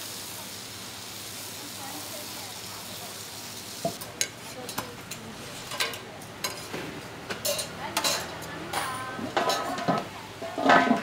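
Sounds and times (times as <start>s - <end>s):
frying hiss: 0.0s - 11.0s.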